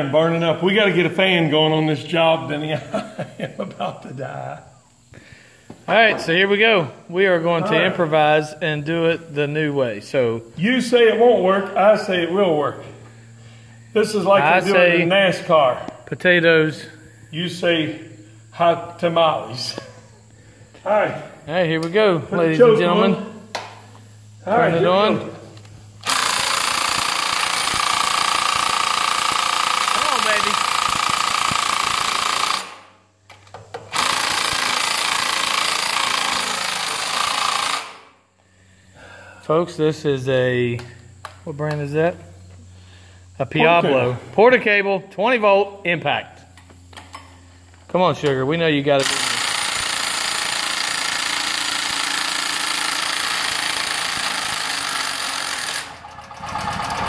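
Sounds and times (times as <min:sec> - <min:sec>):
generator engine cranking: 0:26.0 - 0:32.8, 0:33.8 - 0:37.9, 0:49.0 - 0:57.0
cordless impact driver hammering: 0:30.6 - 0:32.8
impact wrench hammering: 0:49.0 - 0:57.0.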